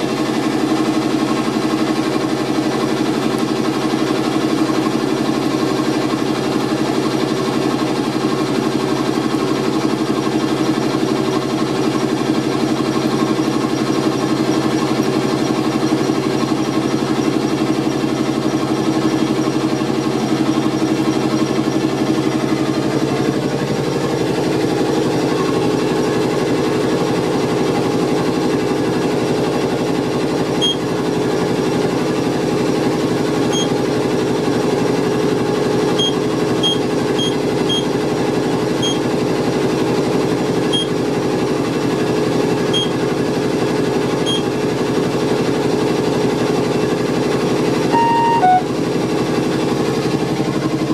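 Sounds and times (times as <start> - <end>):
short radio key beeps: 36.0 - 37.8, 48.0 - 48.7.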